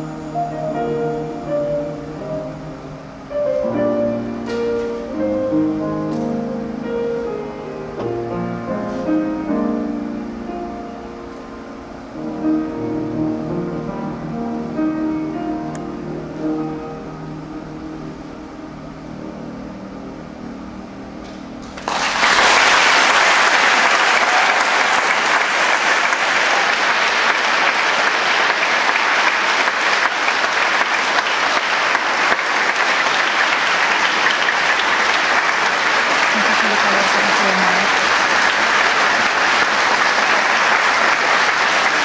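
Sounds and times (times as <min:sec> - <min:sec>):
music: 0:00.0 - 0:23.3
audience applause: 0:21.7 - 0:42.0.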